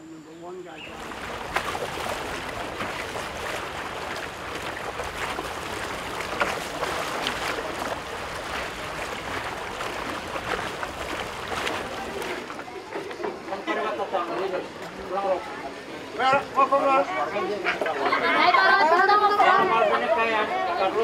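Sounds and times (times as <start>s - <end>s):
water splashing and rushing: 0.8s - 13.5s.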